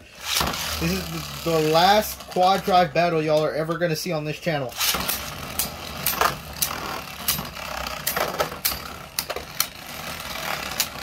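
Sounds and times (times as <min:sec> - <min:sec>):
spinning tops whirring: 0:00.0 - 0:03.4, 0:04.7 - 0:11.0
spinning tops clacking together: 0:04.8 - 0:11.0.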